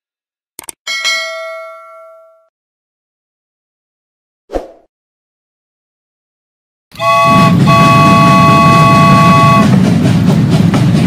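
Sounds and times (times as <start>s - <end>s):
swish: 4.5s - 4.9s
multi-note train horn: 7.0s - 9.8s
train rolling rumble: 7.0s - 11.0s.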